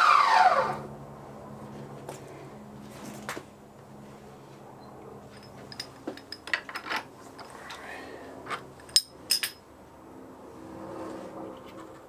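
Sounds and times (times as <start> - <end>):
metallic clinks and taps: 5.3 - 7.6, 8.8 - 9.6.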